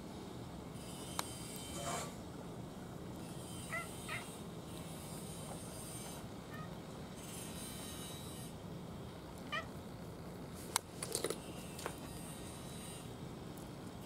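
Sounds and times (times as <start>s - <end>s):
cat meowing: 3.7s - 4.3s, 9.5s - 9.8s
cat crunching dry kibble: 10.6s - 12.0s.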